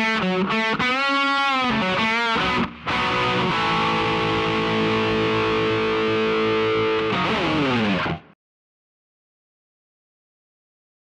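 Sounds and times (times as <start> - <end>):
distorted electric guitar: 0.0 - 8.4.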